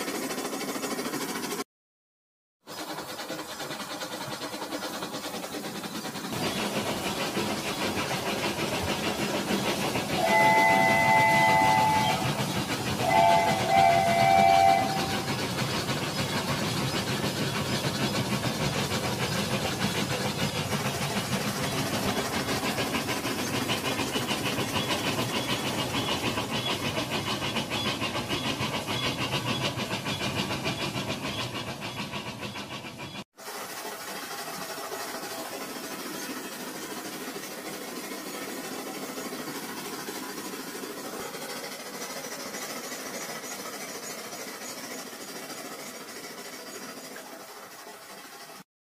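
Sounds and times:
toy train whirring and rattling: 0.0s - 1.6s, 2.7s - 48.7s
electronic steam-whistle toots: 9.9s - 15.6s.

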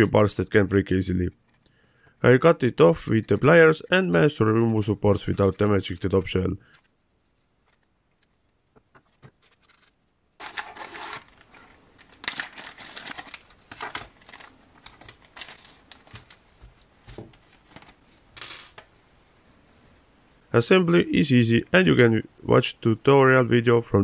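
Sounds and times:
plastic bags crinkling: 9.3s - 16.6s.

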